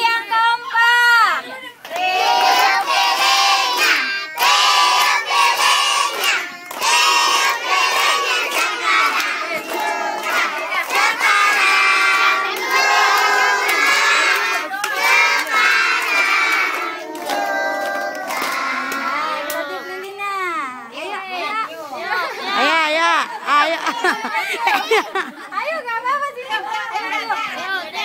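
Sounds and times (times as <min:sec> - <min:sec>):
children singing a birthday song: 0:01.8 - 0:20.9.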